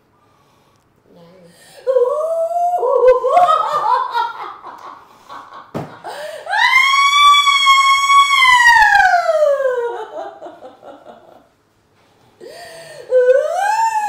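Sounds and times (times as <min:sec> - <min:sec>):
woman shrieking: 0:06.1 - 0:10.2, 0:13.1 - 0:14.0
woman cackling laughter: 0:09.6 - 0:11.5.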